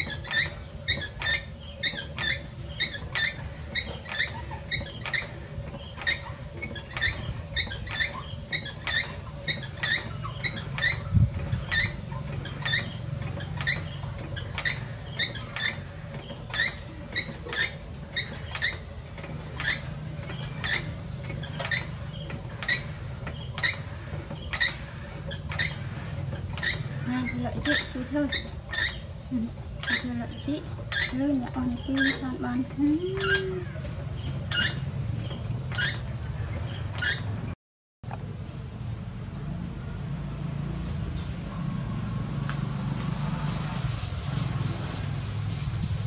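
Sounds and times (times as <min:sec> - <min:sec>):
potter's wheel humming: 0:00.0 - 0:36.7
short high squeak: 0:34.5 - 0:37.4.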